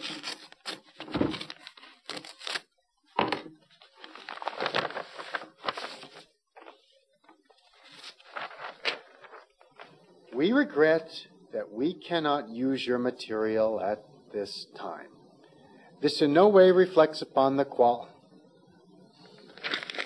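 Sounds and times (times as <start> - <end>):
paper envelope tearing and rustling: 0.0 - 2.7, 3.8 - 6.8, 7.7 - 9.9, 19.5 - 20.0.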